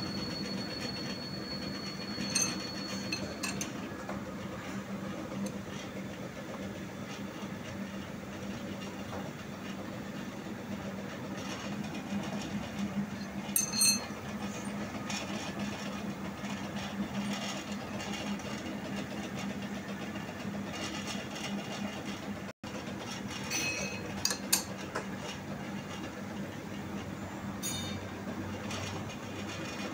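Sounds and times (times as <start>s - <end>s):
metal lathe humming: 0.0s - 5.9s
sharp metallic clinks: 1.9s - 3.6s, 13.6s - 14.1s.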